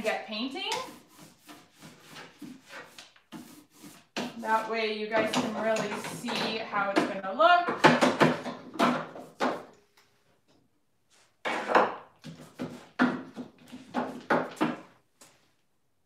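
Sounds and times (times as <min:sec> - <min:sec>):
paintbrush scraping on wood: 0:00.0 - 0:06.9.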